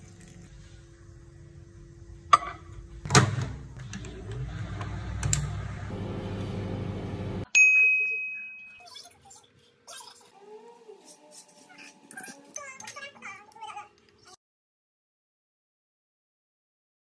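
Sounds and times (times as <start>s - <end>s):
microwave oven humming: 0.0s - 7.5s
microwave door shutting: 3.1s - 5.7s
timer bell ding: 7.5s - 8.8s.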